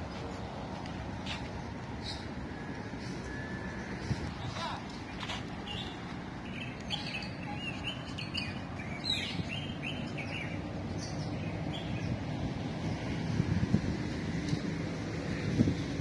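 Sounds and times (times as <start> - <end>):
small birds chirping: 5.0 - 12.2.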